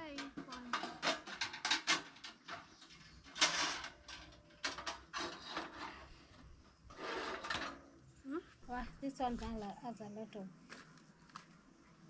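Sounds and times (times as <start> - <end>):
metal scrape: 0.5 - 7.8.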